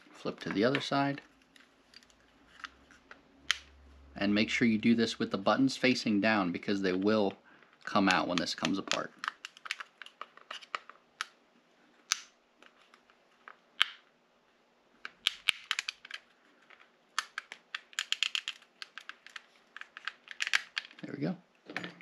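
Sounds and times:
plastic clips clicking and snapping: 15.1s - 16.3s, 17.1s - 21.1s.

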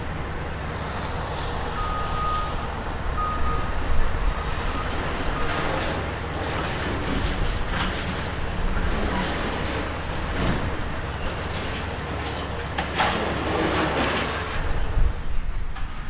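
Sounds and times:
excavator diesel engine running: 0.0s - 16.0s
backup alarm beeps: 1.7s - 3.8s.

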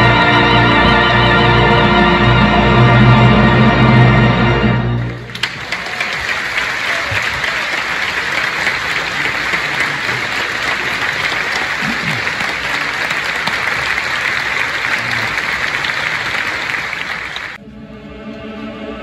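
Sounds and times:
audience applauding: 5.0s - 17.6s.

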